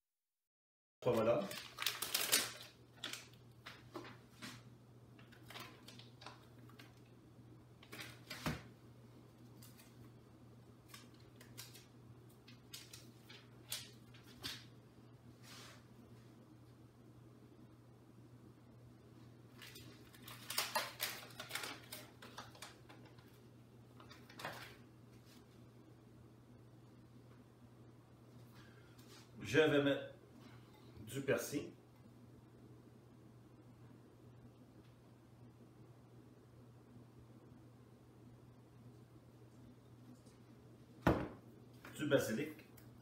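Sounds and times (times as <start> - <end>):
plastic package rustling: 1.0 - 4.3, 5.2 - 7.1, 7.8 - 8.4, 19.5 - 23.4.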